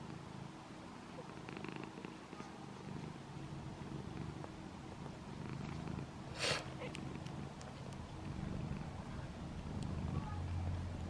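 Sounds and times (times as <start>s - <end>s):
cat purring: 0.0s - 11.0s
faint clicks: 9.7s - 10.0s.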